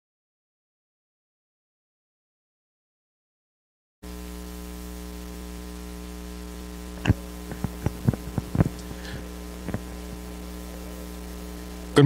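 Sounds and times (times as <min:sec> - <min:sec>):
electrical mains hum: 0:04.0 - 0:12.0.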